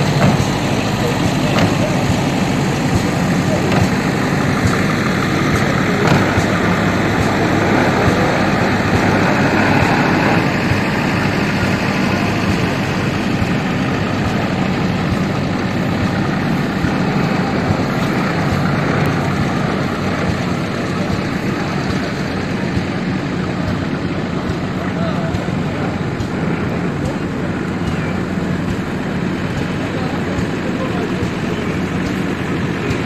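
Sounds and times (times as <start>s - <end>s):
truck engine idling: 0.0s - 33.0s.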